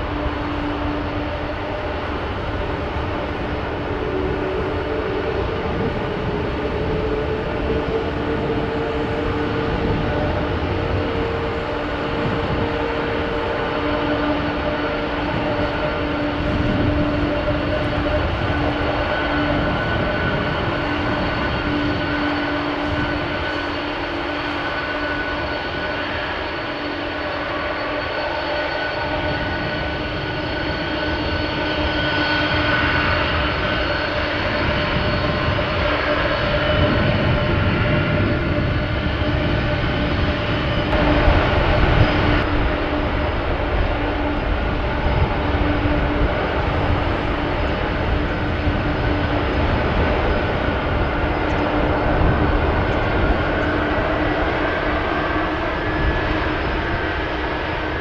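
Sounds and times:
jet engine rumble with whine: 0.0 - 58.0.

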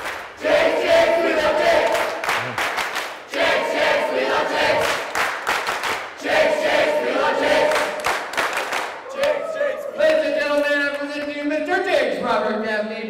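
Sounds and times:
crowd of children chanting: 0.4 - 2.6, 3.3 - 5.1, 6.2 - 8.3.

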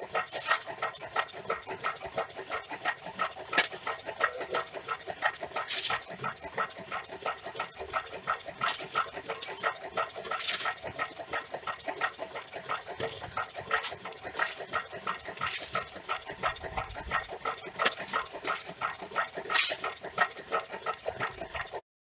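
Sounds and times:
engine running with even beat: 0.0 - 21.8
metal shovel scraping and clinking: 19.6 - 19.8.

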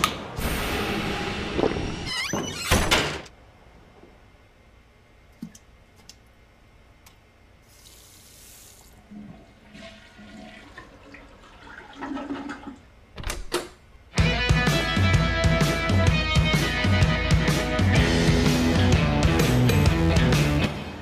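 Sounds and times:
toilet flushing: 7.7 - 12.9.

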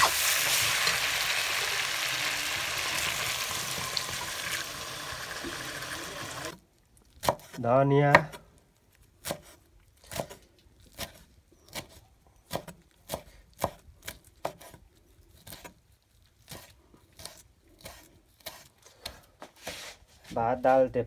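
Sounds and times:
knife chopping on wooden board: 9.2 - 10.4, 12.5 - 14.8.

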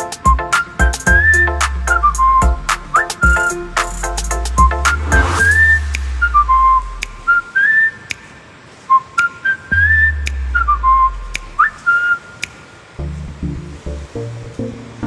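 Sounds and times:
clicking percussion: 0.0 - 6.4
whistled melody: 0.0 - 8.2, 8.9 - 12.5
deep bass swells: 3.6 - 7.4, 13.0 - 15.0.

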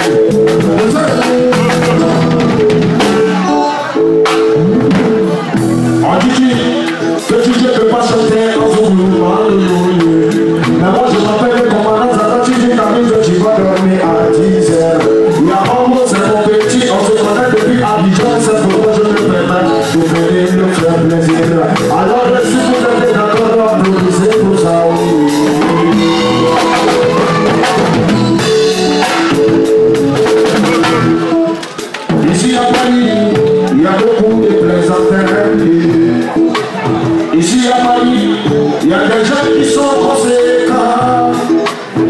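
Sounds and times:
music with drum beat and singing: 0.0 - 42.0.

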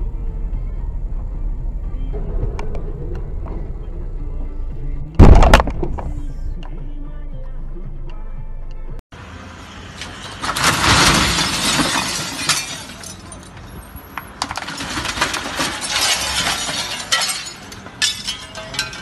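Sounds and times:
debris crashing: 5.2 - 6.0, 9.9 - 19.0
glass shattering: 10.0 - 13.9, 14.5 - 19.0
broken glass clinking: 10.4 - 13.9, 14.6 - 19.0.

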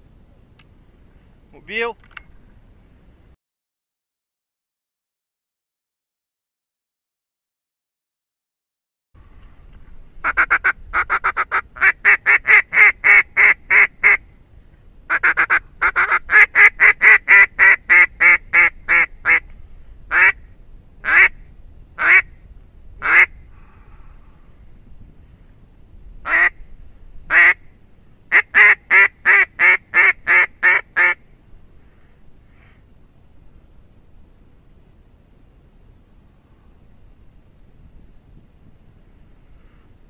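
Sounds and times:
duck call quacks: 10.2 - 14.2, 15.1 - 19.4, 20.1 - 20.4, 21.0 - 21.4, 22.0 - 22.3, 23.0 - 23.3, 26.3 - 26.6, 27.3 - 27.6, 28.3 - 31.2.

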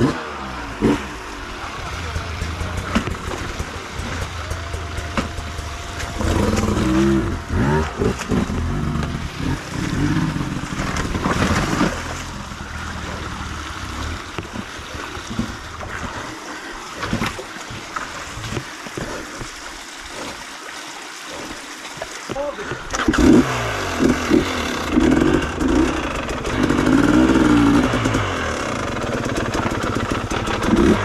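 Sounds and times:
dirt bike engine revving: 0.0 - 15.6, 23.0 - 31.0
water trickling over rocks: 0.8 - 31.0.

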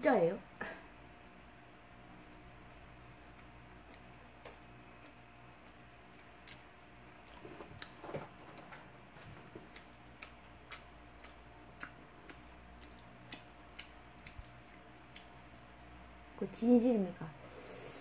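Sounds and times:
wet chewing clicks: 1.6 - 8.0, 9.2 - 15.4.

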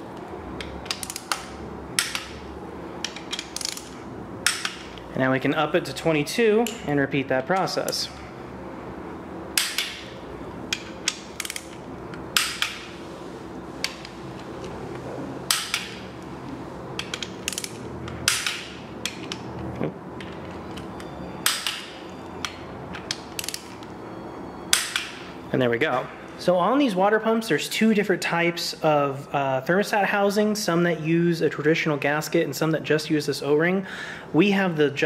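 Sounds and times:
torque wrench ratchet clicks: 0.9 - 1.4, 3.0 - 4.8, 10.8 - 11.8, 17.0 - 19.4, 23.4 - 23.7.

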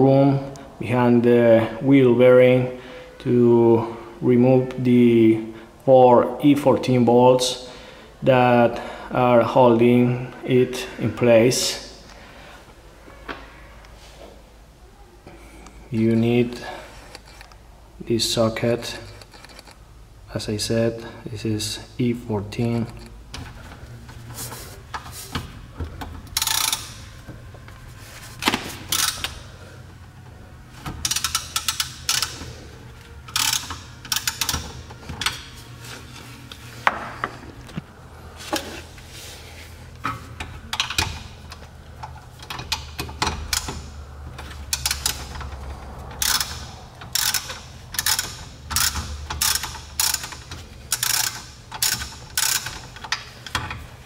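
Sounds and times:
ratchet wrench clicking: 26.3 - 27.0, 28.9 - 29.4, 31.0 - 32.4, 33.3 - 35.4, 42.0 - 43.9, 44.7 - 53.7.

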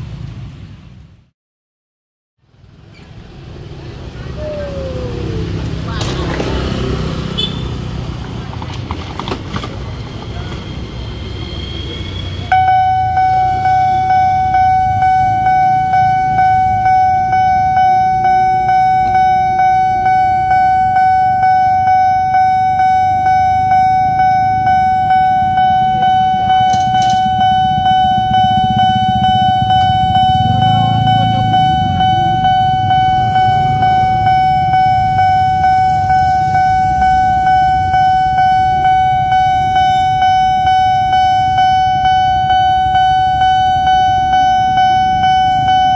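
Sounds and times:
level crossing alarm tone: 4.3 - 7.5, 11.7 - 45.9.

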